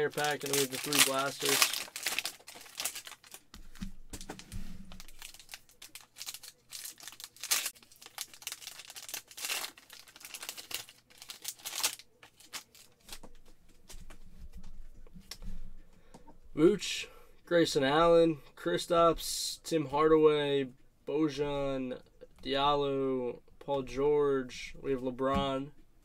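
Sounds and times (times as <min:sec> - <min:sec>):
wrapper crinkling and tearing: 0:00.0 - 0:03.5, 0:04.9 - 0:13.2
cards clicking and rubbing: 0:00.1 - 0:14.2.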